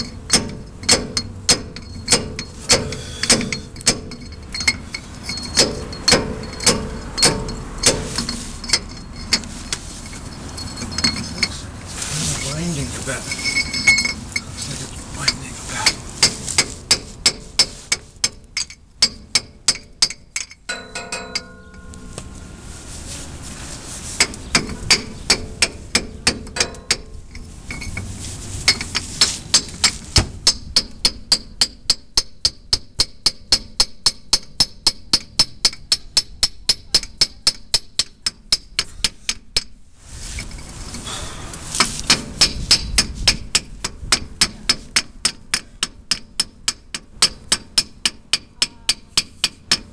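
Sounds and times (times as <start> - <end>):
hammer tapping on metal pipe: 0.0 - 4.8, 15.8 - 22.1.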